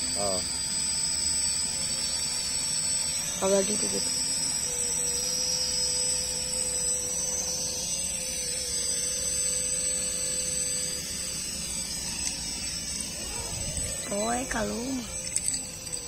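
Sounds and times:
toy drone propellers whining: 0:00.0 - 0:16.0.

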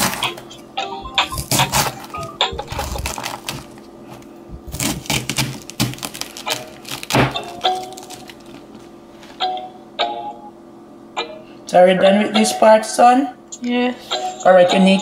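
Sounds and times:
knife cutting through cabbage: 0:00.0 - 0:00.4, 0:01.4 - 0:03.7, 0:04.7 - 0:08.6.

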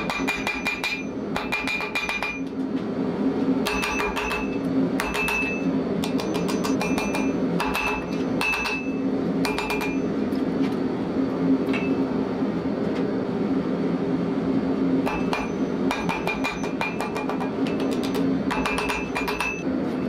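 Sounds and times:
hammer striking steel on anvil: 0:00.0 - 0:02.5, 0:03.6 - 0:10.2, 0:11.7 - 0:12.0, 0:15.0 - 0:19.7
steady low hum: 0:00.0 - 0:20.0.

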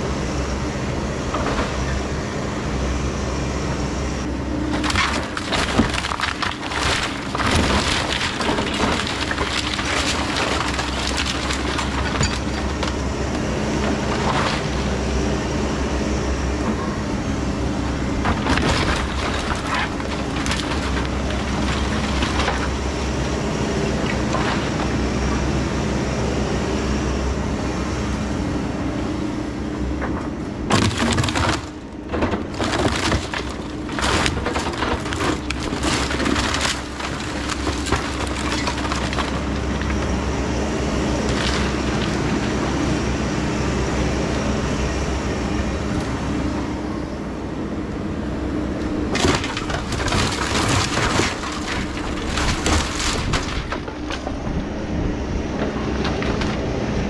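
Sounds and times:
excavator running: 0:00.0 - 0:57.0
timber cracking and crashing down: 0:04.7 - 0:13.0, 0:18.2 - 0:22.8, 0:30.7 - 0:40.1, 0:41.2 - 0:42.4, 0:49.1 - 0:54.6.

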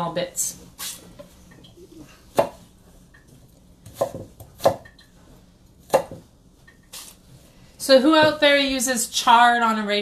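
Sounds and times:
knife chopping on cutting board: 0:02.3 - 0:02.6, 0:03.8 - 0:04.9, 0:05.8 - 0:06.3.

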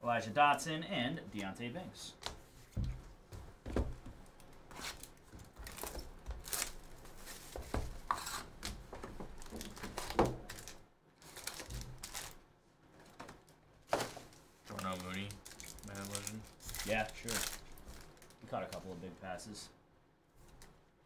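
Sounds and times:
foil crinkling: 0:04.8 - 0:07.4, 0:09.3 - 0:12.4, 0:14.7 - 0:18.8.

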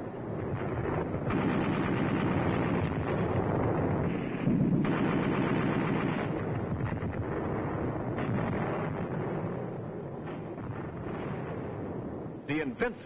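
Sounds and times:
heavy blast: 0:00.0 - 0:13.0
machine-gun and rifle fire: 0:00.5 - 0:09.6.

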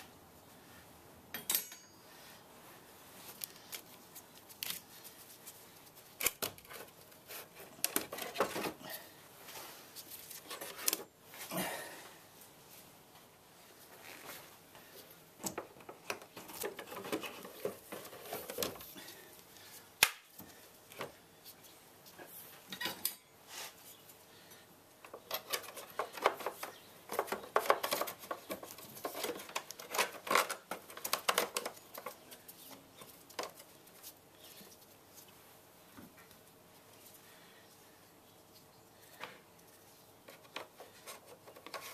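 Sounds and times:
wrench clinking on metal clamp: 0:01.3 - 0:02.0.

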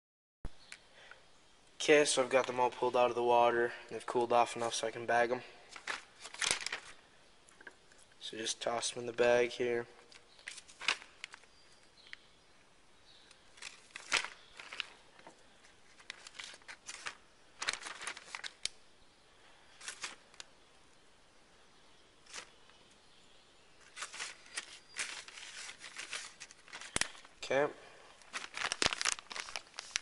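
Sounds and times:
plastic bag crinkling: 0:05.7 - 0:07.0, 0:10.1 - 0:11.7, 0:13.5 - 0:18.8, 0:19.7 - 0:20.5, 0:22.2 - 0:22.6, 0:23.8 - 0:27.5, 0:28.1 - 0:30.0.

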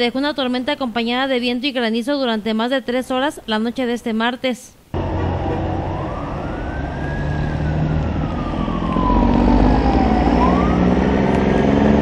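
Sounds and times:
emergency siren wailing: 0:05.0 - 0:12.0
engine rumble: 0:05.0 - 0:12.0
traffic noise: 0:05.0 - 0:12.0.

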